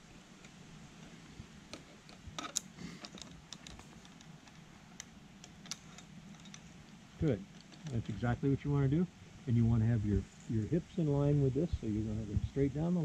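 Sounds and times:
zipline gear clicking: 1.7s - 8.1s.

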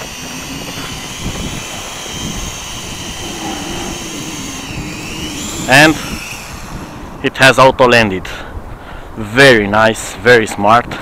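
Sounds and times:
quadcopter propellers whining: 0.0s - 8.3s.

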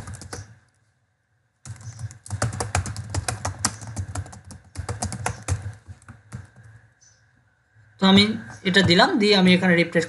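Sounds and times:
fast typing on keyboard: 0.0s - 0.6s, 1.6s - 6.8s.

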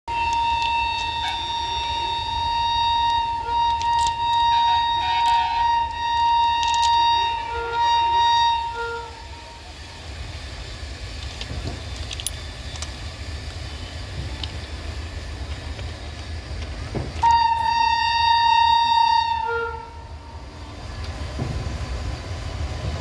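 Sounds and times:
freight train rumble: 0.0s - 23.0s
high-pitched locomotive horn: 0.1s - 9.9s, 17.2s - 20.4s.

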